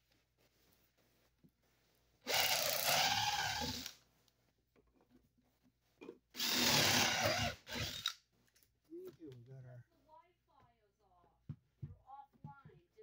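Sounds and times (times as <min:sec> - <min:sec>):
power drill boring into wood: 0:02.3 - 0:04.0, 0:06.4 - 0:08.2.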